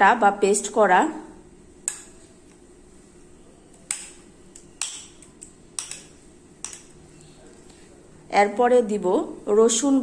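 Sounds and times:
metal spoon clinking on dishes: 0:03.9 - 0:07.0.

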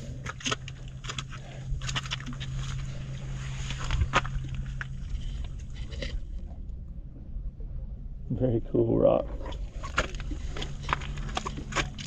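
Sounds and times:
footsteps on rock: 0:00.1 - 0:06.1, 0:09.6 - 0:12.0.

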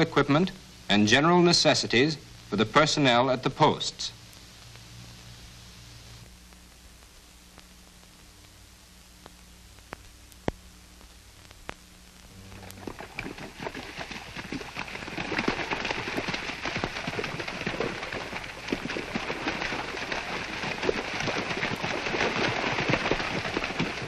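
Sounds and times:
feet splashing through water: 0:12.8 - 0:24.0.

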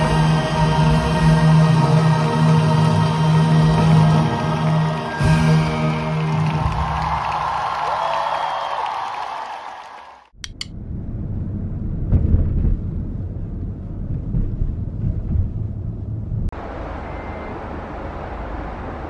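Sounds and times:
vehicle rumble inside cabin: 0:10.4 - 0:19.0.

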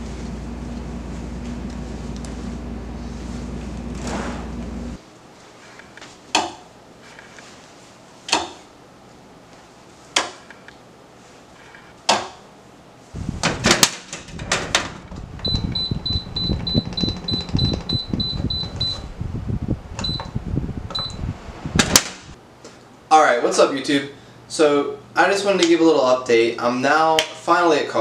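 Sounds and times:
low rumbling noise: 0:13.1 - 0:22.4
air conditioner control panel beeps: 0:15.4 - 0:19.1, 0:20.0 - 0:21.2.

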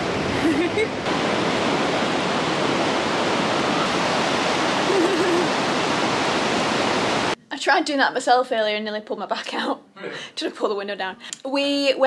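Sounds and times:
surf washing onto beach: 0:00.0 - 0:07.4.

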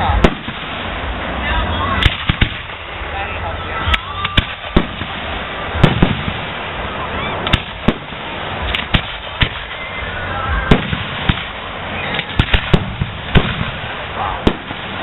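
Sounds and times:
firework shells bursting: 0:00.0 - 0:01.1, 0:02.0 - 0:02.9, 0:03.8 - 0:06.8, 0:07.4 - 0:09.8, 0:10.7 - 0:15.0.

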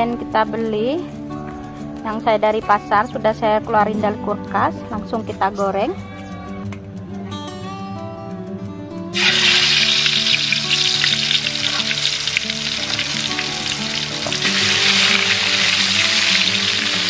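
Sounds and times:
fish sizzling in hot oil: 0:09.2 - 0:17.0.

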